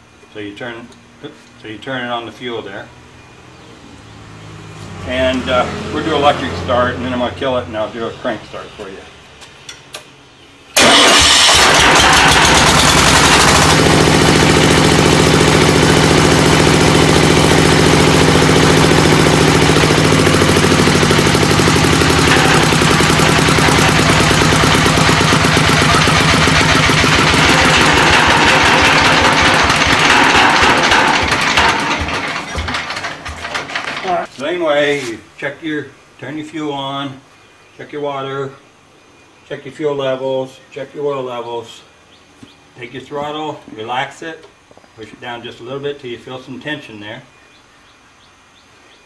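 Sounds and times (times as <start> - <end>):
diesel engine thudding: 10.8 - 34.3
electric starter cranking: 10.8 - 34.3.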